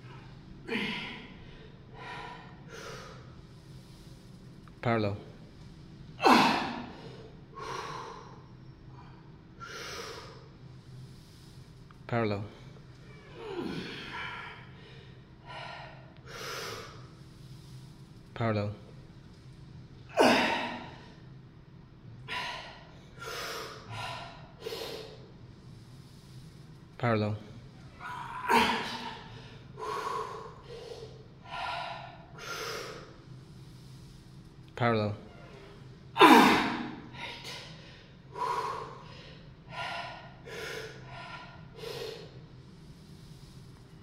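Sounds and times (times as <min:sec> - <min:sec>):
man breathing hard: 0:00.0 - 0:04.6, 0:22.2 - 0:26.8, 0:27.9 - 0:34.5, 0:36.2 - 0:43.9.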